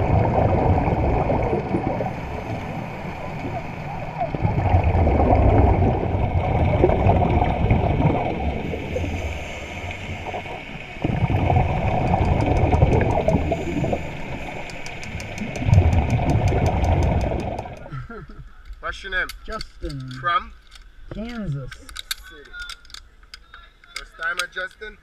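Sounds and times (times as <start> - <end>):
underwater churning water: 0.0 - 17.9
fast faint ticks: 11.7 - 17.9.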